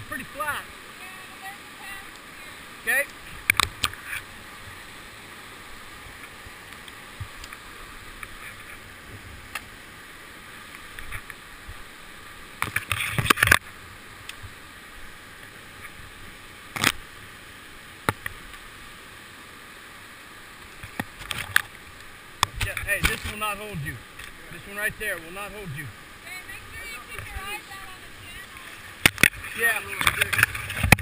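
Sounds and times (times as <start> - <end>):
whitewater rushing: 0.0 - 31.0.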